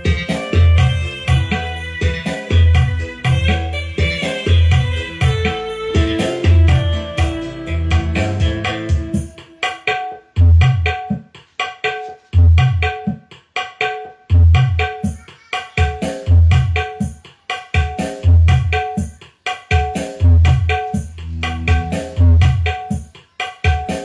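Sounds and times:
drum music over speakers: 0.0s - 24.0s
deep bass hits: 0.6s - 9.2s, 20.2s - 22.6s.

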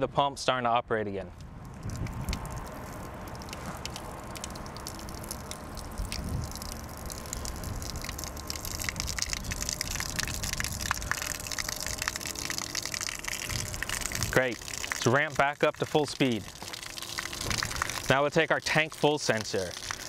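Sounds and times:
water gushing onto pavement: 1.5s - 20.0s.

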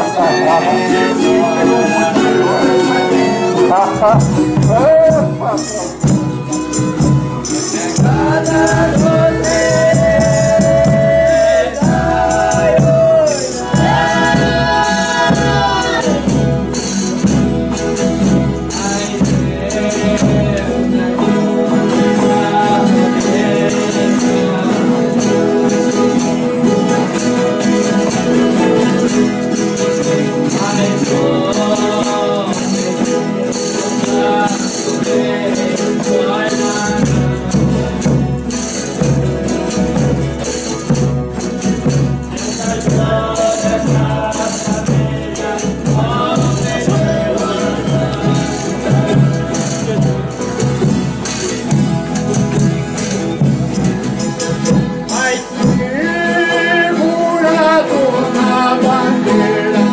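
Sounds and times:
violin: 0.0s - 44.4s
strummed guitars: 0.0s - 59.9s
voices singing: 0.0s - 59.9s
tambourine jingles: 3.4s - 59.9s.

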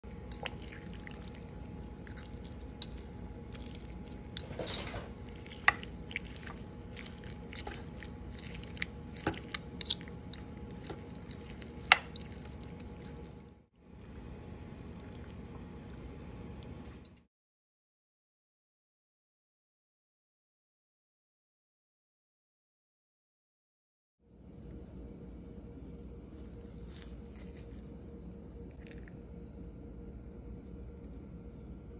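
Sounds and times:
meat squishing wetly: 0.0s - 16.6s.

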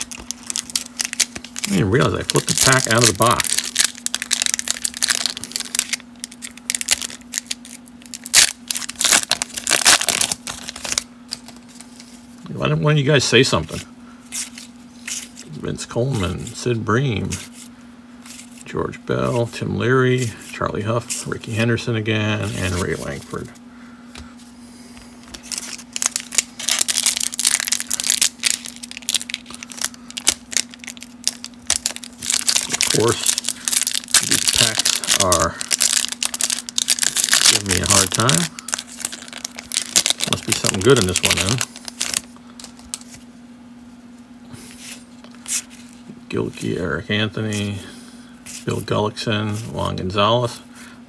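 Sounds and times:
wrapper being torn open: 0.0s - 11.8s, 25.3s - 43.2s.

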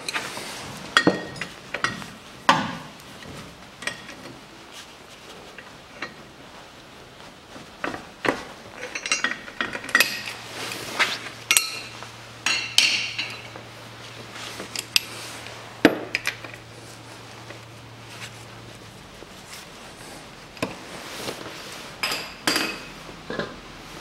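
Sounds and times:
metal tools clinking: 8.8s - 10.4s, 11.4s - 13.6s.

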